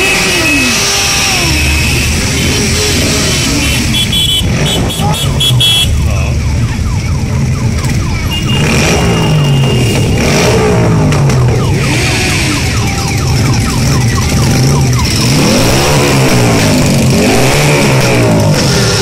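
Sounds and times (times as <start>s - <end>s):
steady high tone: 11.6s - 16.6s.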